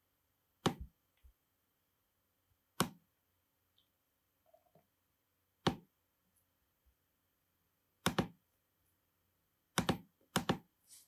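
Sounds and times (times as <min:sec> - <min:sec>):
computer mouse clicks: 0:09.8 - 0:10.7.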